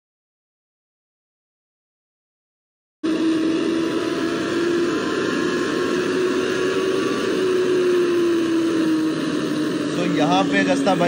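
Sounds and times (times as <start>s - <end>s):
loud wind noise: 3.0s - 11.0s
motorcycle engine at high speed: 3.0s - 11.0s.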